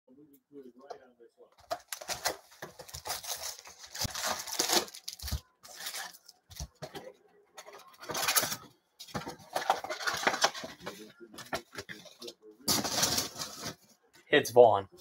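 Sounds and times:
foil wrappers rustling: 1.7 - 6.6, 12.2 - 13.8.

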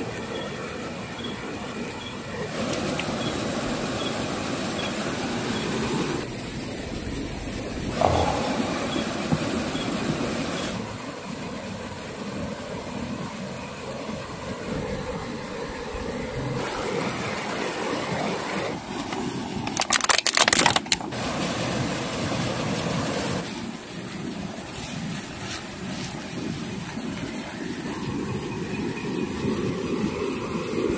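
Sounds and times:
water rushing: 0.8 - 20.0
loud rustling and clattering: 19.6 - 21.2.

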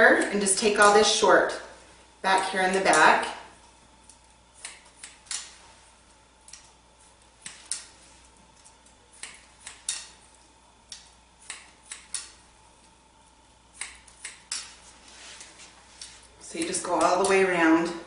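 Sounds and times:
scissors snipping hair: 2.7 - 3.2, 4.0 - 5.6, 6.4 - 6.8, 7.4 - 12.4, 13.8 - 14.8, 16.0 - 17.6.

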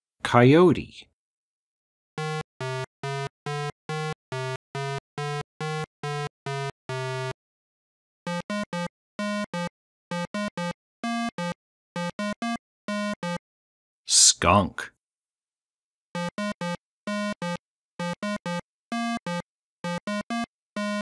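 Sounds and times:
chiptune synthesizer music: 2.2 - 7.4, 8.3 - 13.4, 16.2 - 21.0.

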